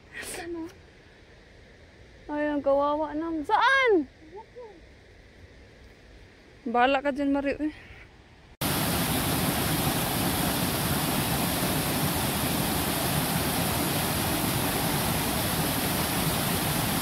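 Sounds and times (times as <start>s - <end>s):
water rushing over rocks: 8.6s - 17.0s.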